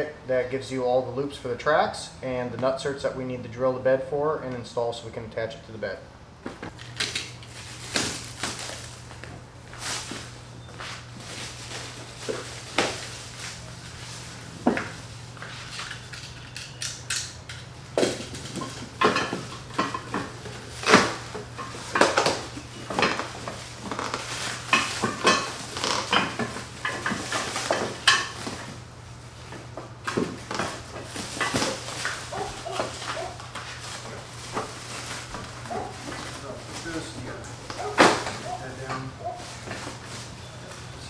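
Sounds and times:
plastic wrap crinkling and tearing: 7.0 - 10.3, 23.0 - 28.0, 30.8 - 40.8.

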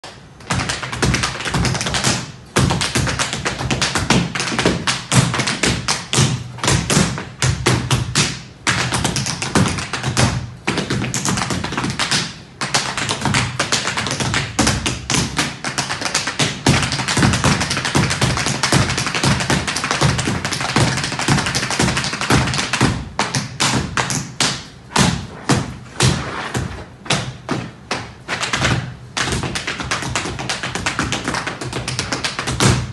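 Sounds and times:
tap shoes on wooden floor: 0.5 - 32.9.

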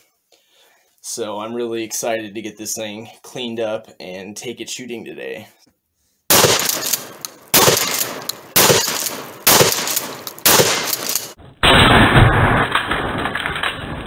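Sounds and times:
shotgun shots ringing: 6.3 - 14.0.

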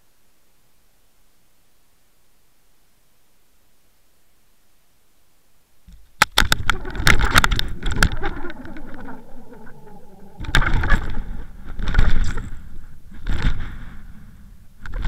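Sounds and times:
underwater clicks and knocks: 5.9 - 12.5
low underwater rumble: 6.6 - 12.9.

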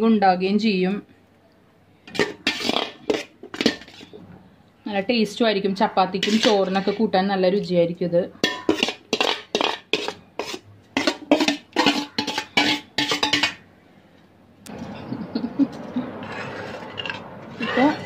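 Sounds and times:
metal spoon scraping a steel pot: 2.1 - 4.2, 6.1 - 7.1, 8.4 - 13.6, 16.2 - 18.0
spoon stirring thick curry: 2.1 - 4.2, 6.1 - 7.0, 8.4 - 13.6.

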